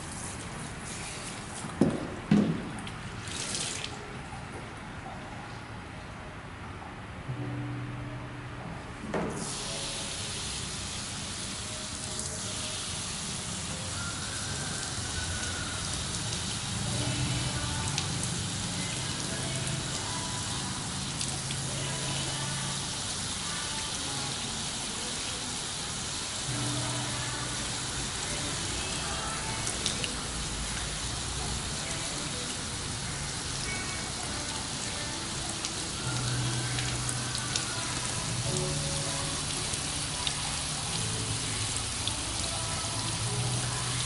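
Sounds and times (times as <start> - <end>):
shower sprayer hissing: 0.0 - 1.9, 9.3 - 44.0.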